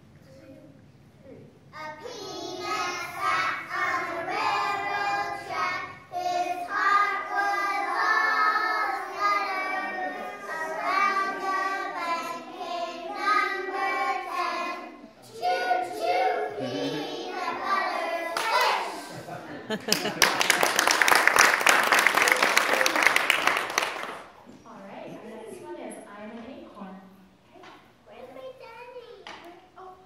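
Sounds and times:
children singing: 0:02.0 - 0:19.2.

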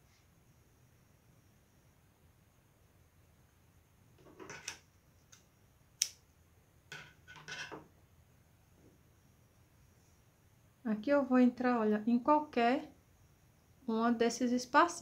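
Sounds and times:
sharp click: 0:04.7 - 0:06.2.

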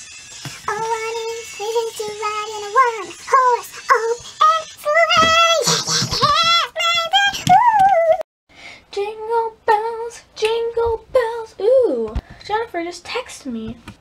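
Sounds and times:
girl singing in high voice: 0:00.4 - 0:08.2, 0:08.9 - 0:12.2.

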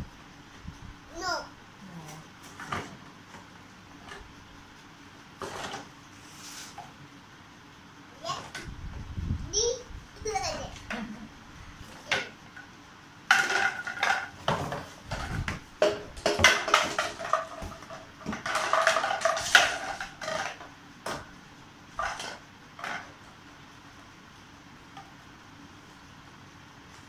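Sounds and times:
plastic bottles clattering: 0:13.3 - 0:20.6.

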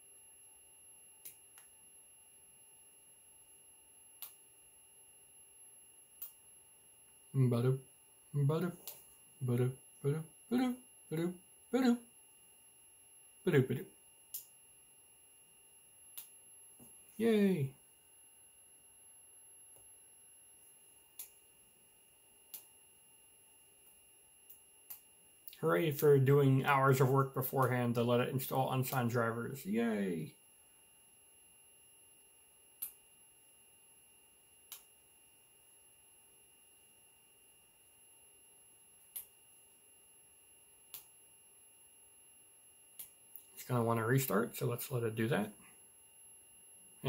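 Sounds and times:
faint high-pitched electronic whine: 0:00.0 - 0:47.0
faint ticks: 0:04.2 - 0:04.4.

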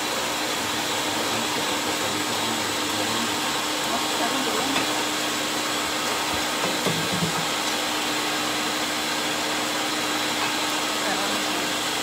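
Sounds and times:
range hood fan whooshing: 0:00.0 - 0:12.0.

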